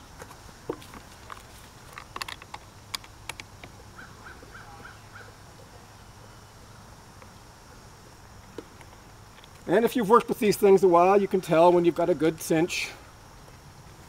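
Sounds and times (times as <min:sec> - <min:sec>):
metal clamp clicks and knocks: 0:01.2 - 0:03.5
bird calling: 0:03.9 - 0:05.4.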